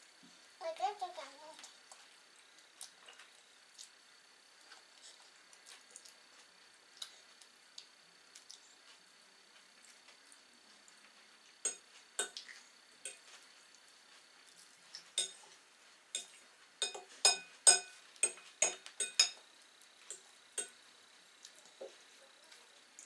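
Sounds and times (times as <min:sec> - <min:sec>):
cutlery and dishes clinking: 0:11.7 - 0:12.4, 0:15.2 - 0:15.5, 0:16.2 - 0:19.4.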